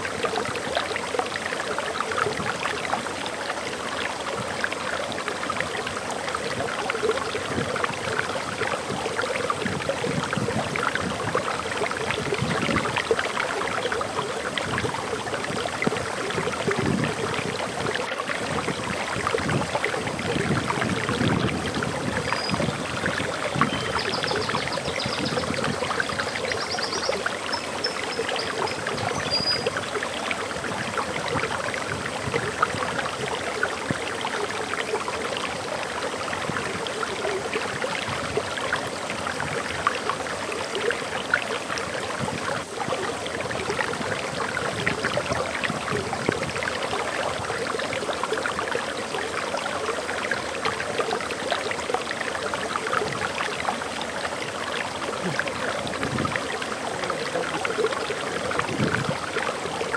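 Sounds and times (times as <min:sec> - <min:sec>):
water rushing over waterfall: 0:00.0 - 0:59.9
bird chirps: 0:29.1 - 0:29.6.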